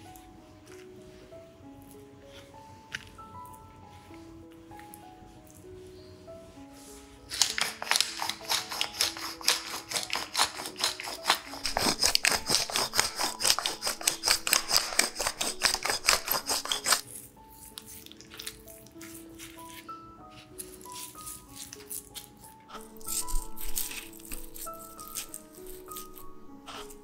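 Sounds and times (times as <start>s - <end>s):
soft background music: 0.0s - 27.0s
pepper mill grinding: 7.3s - 19.8s, 20.6s - 27.0s.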